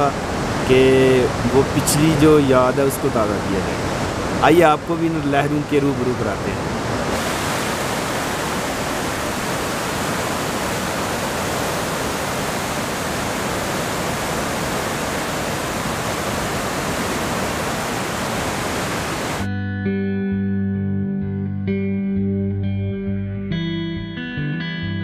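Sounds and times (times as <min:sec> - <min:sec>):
rapids roaring: 0:00.0 - 0:19.5.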